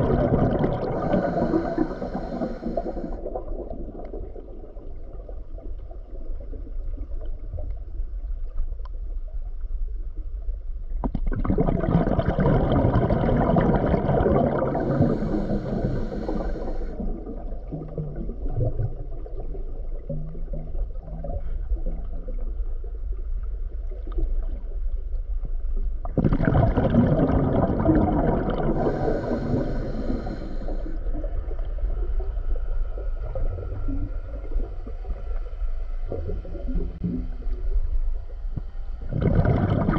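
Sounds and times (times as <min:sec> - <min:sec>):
rush of bubbling water: 0:00.0 - 0:07.4, 0:11.0 - 0:22.5, 0:26.0 - 0:31.7, 0:39.0 - 0:39.9
low underwater rumble: 0:00.0 - 0:39.9.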